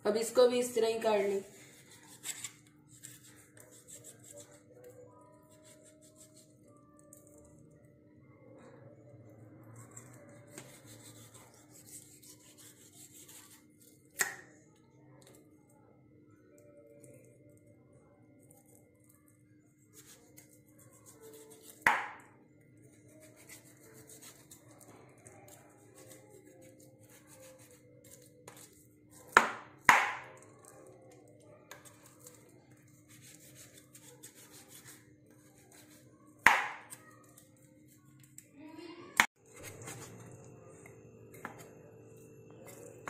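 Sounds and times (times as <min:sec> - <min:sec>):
knife slicing and scraping meat: 0:01.5 - 0:04.8, 0:05.4 - 0:07.4, 0:09.7 - 0:14.1, 0:19.8 - 0:21.9, 0:22.9 - 0:29.4, 0:31.8 - 0:36.2, 0:39.5 - 0:40.3.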